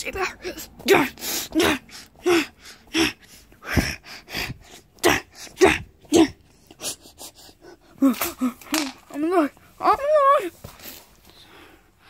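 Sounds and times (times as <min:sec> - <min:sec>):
person coughing and gasping: 0:00.2 - 0:08.9.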